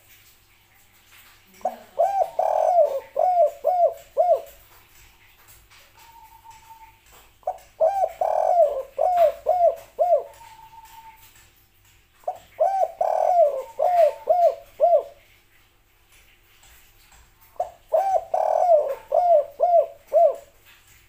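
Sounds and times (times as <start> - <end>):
dove cooing: 1.6 - 4.7, 6.0 - 11.3, 12.2 - 15.2, 17.6 - 20.6.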